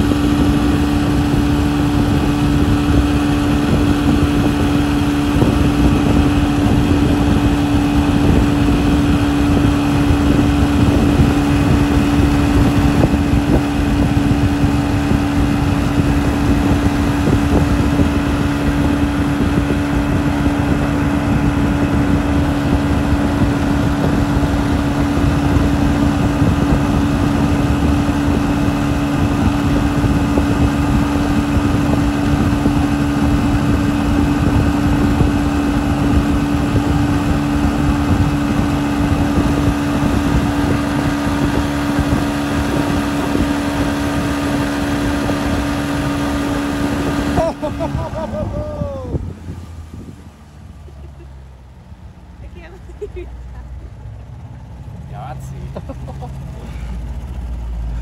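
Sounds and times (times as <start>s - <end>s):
boat engine droning: 0.0s - 58.0s
rush of noise: 0.0s - 58.0s.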